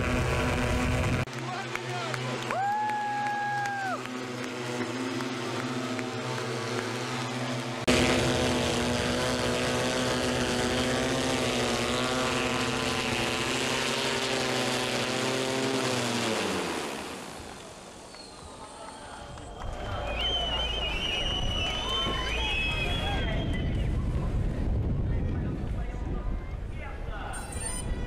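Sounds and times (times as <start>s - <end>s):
hoverbike propellers droning: 0.0s - 28.0s.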